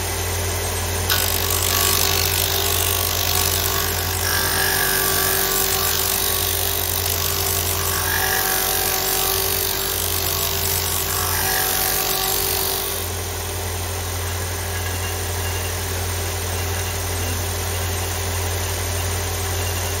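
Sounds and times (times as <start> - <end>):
sander motor hum: 1.0 - 13.2
sanding disc rasping on wood: 1.1 - 13.1.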